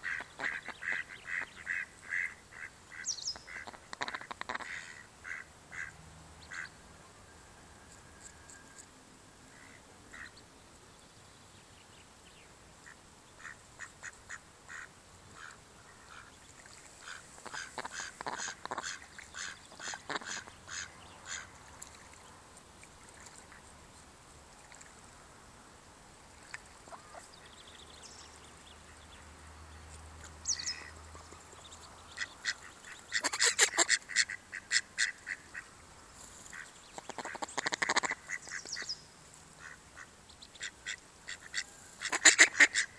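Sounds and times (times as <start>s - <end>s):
ducks quacking: 0.0s - 6.8s, 12.8s - 16.4s, 17.0s - 21.8s, 32.1s - 35.7s, 36.5s - 38.8s, 39.6s - 42.9s.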